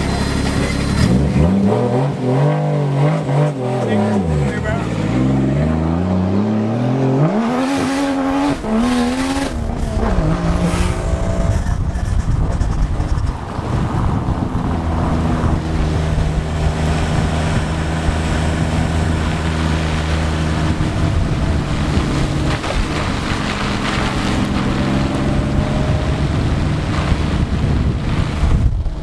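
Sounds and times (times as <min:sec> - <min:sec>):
car engine running evenly: 0:00.0 - 0:29.0
wind buffeting microphone: 0:04.9 - 0:29.0.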